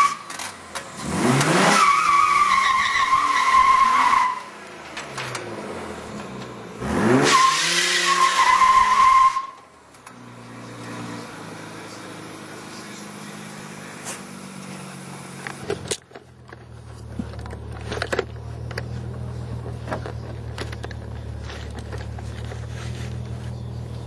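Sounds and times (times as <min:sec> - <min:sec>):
car engine idling: 0:09.7 - 0:24.0.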